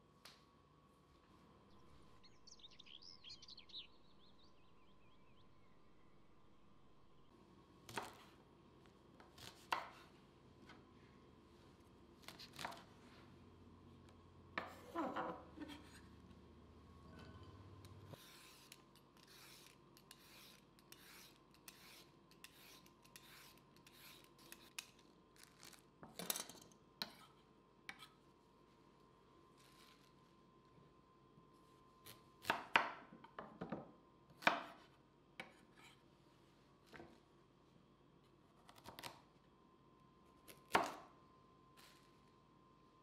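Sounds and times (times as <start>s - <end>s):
peeler scraping a carrot: 18.1s - 24.9s
knife cuts on wooden board: 18.2s - 24.9s.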